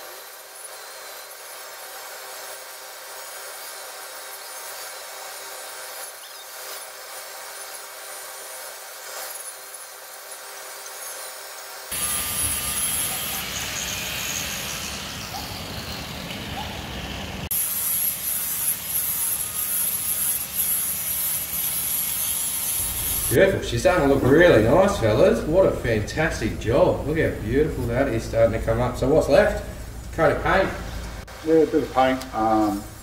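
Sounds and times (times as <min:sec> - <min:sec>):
angle grinder polishing metal: 0:00.0 - 0:25.4.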